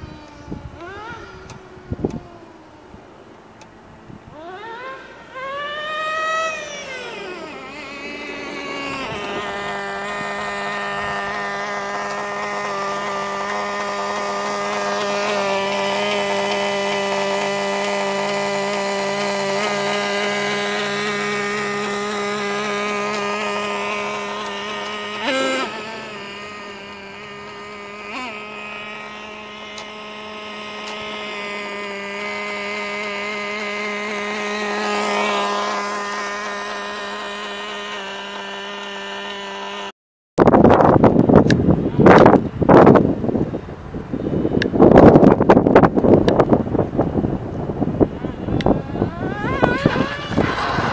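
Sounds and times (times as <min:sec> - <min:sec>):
gusty wind on microphone: 0:00.0 - 0:03.1, 0:40.4 - 0:50.9
rc truck engine buzzing: 0:00.0 - 0:50.9.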